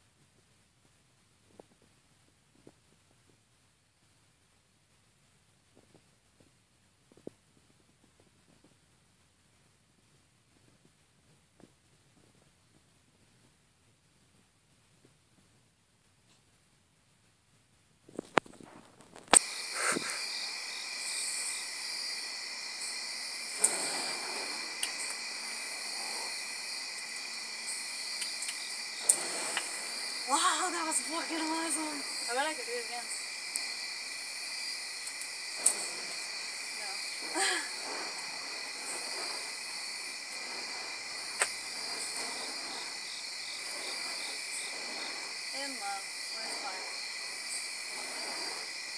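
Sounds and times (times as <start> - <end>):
night insects trilling: 18.6 - 48.9
whooshes of swinging fire: 21.0 - 32.8, 34.7 - 48.9
sharp clicks: 28.2 - 29.8, 35.0 - 35.8.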